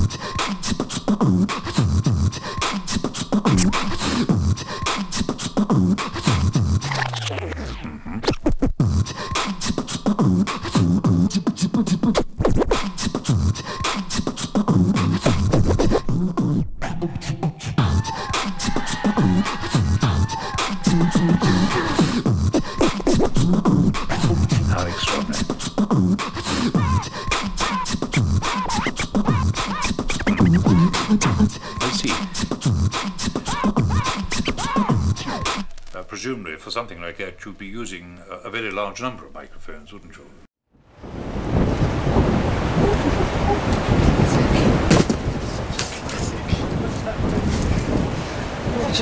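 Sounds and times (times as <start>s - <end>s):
beatboxing kick drums: 0.0s - 35.9s
falling bass glide: 3.5s - 4.4s.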